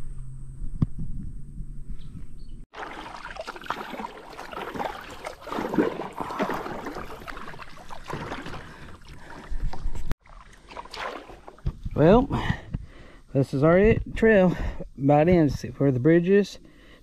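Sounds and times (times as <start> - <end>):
paddle splashing water: 2.7 - 12.0.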